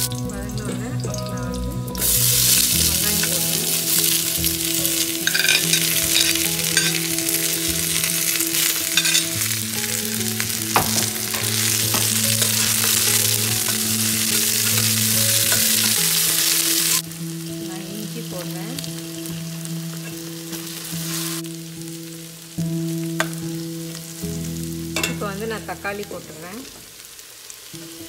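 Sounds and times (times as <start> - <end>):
onions sizzling in oil: 0.0 - 28.0
metal spoon scraping pot: 5.2 - 7.5, 8.6 - 9.4.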